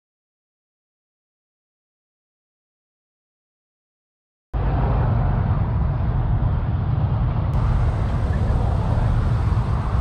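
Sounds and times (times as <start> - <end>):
low vehicle engine running: 4.6 - 10.0.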